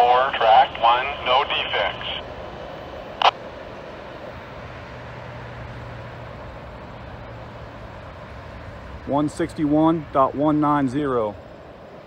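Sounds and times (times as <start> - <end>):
scanner radio noise burst: 0.0 - 2.3
distant freight train rumble: 0.0 - 12.0.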